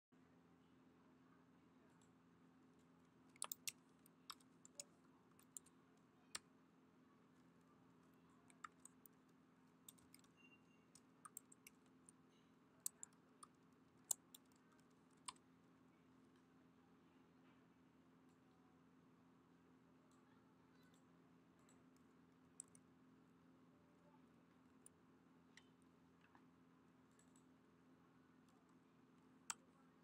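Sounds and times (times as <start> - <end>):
faint low hum: 0.1 - 30.0
keyboard key clicks: 3.4 - 3.8.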